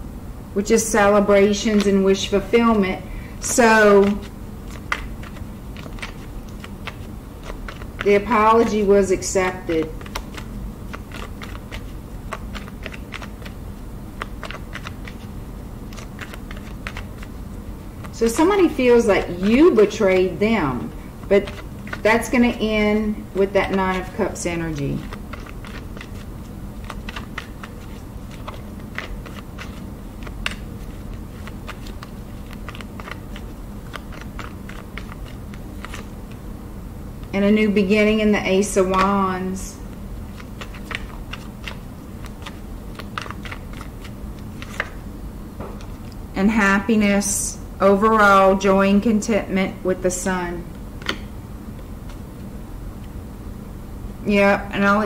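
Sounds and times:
cards being shuffled: 3.4s - 36.4s, 38.8s - 39.2s, 39.9s - 45.0s.

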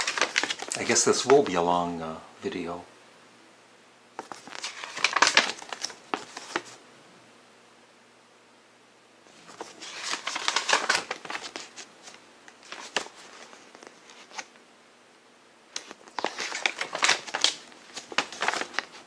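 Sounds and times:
booklet pages turning: 0.0s - 1.6s, 4.2s - 6.8s, 9.3s - 14.5s, 15.7s - 19.0s.

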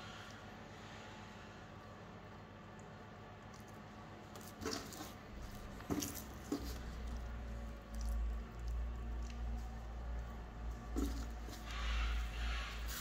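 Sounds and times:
wet squishy fish handling: 2.6s - 13.0s.

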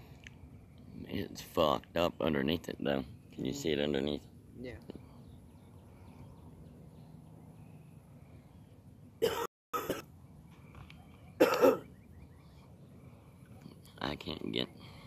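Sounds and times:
person coughing: 9.2s - 10.0s, 11.4s - 11.9s.

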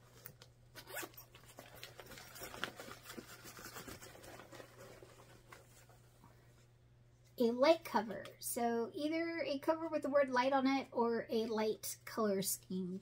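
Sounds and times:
fabric rustling: 0.0s - 6.8s.

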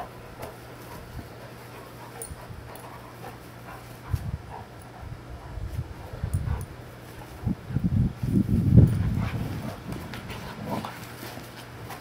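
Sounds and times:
dogs grunting: 0.0s - 6.8s, 8.9s - 12.0s
dogs scuffling: 8.2s - 12.0s.

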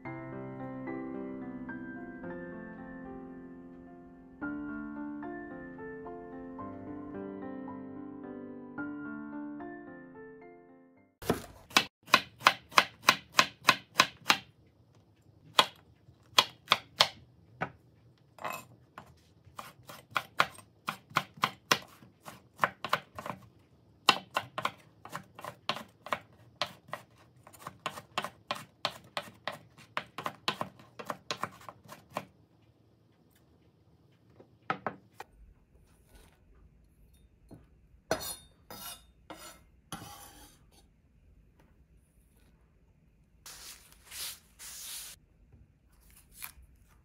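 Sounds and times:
knife chopping on wooden board: 11.2s - 14.5s, 15.5s - 17.8s, 18.5s - 23.4s, 24.0s - 32.3s.

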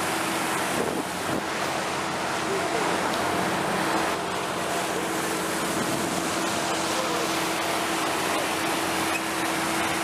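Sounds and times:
boat motor hum: 0.0s - 10.0s
water rushing in wake: 0.0s - 10.0s.

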